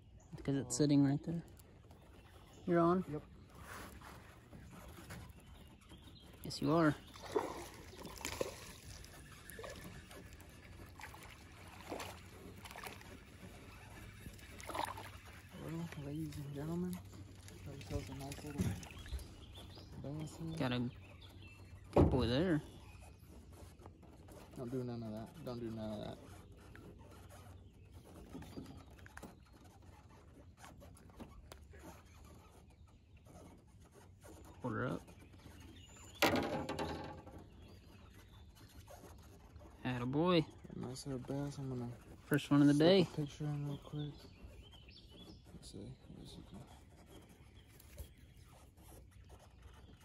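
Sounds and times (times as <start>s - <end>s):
faint water splashing: 0.0s - 50.0s.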